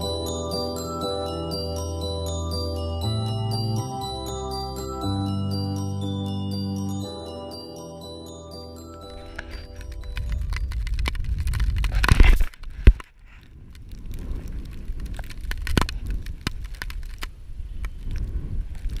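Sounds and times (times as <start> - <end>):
ski gear clicks and knocks: 9.4 - 19.0
wind rumbling on microphone: 9.6 - 19.0.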